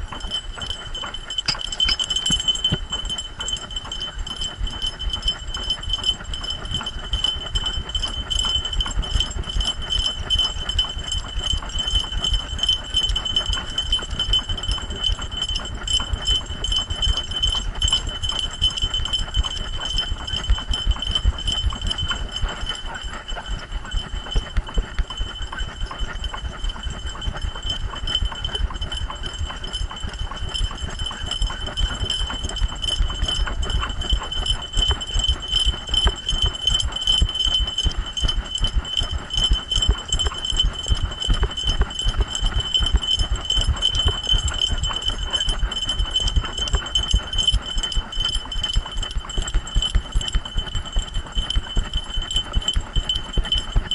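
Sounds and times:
high jingling: 0:00.2 - 0:04.3.

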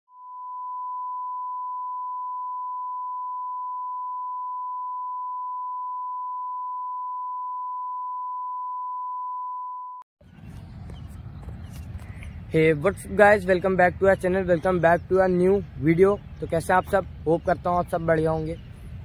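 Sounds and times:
steady electronic beep tone: 0:00.1 - 0:10.0.

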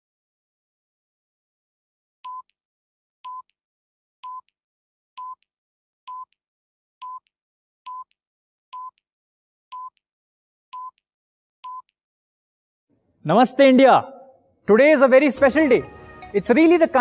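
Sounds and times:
short electronic beeps: 0:07.0 - 0:07.2, 0:07.9 - 0:08.1, 0:08.8 - 0:09.0, 0:10.8 - 0:11.0, 0:11.6 - 0:12.0.

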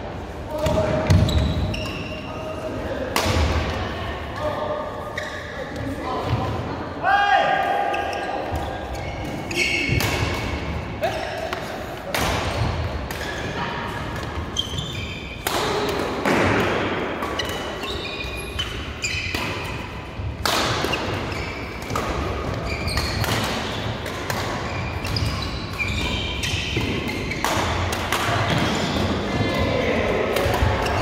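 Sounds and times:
shoes squeaking on court: 0:01.1 - 0:02.3, 0:05.0 - 0:06.4, 0:07.9 - 0:10.0, 0:12.5 - 0:15.4, 0:17.2 - 0:19.9, 0:20.8 - 0:27.8
racket hitting shuttlecock: 0:18.6 - 0:29.5.

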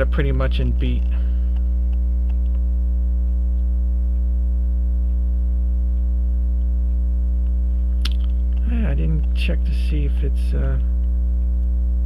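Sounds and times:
electrical mains hum: 0:00.0 - 0:12.0
faint light ticks: 0:01.5 - 0:04.3.

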